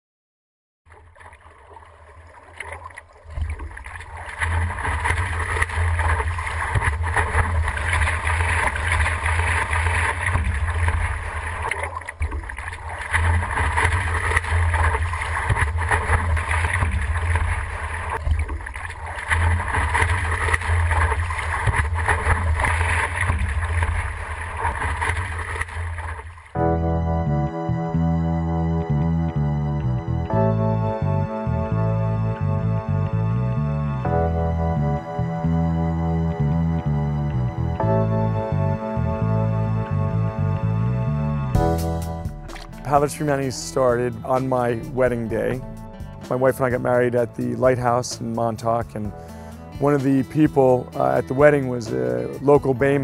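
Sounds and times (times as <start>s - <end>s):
water rushing and splashing: 0.9s - 26.6s, 42.4s - 45.6s
boat engine rumble: 0.9s - 53.0s.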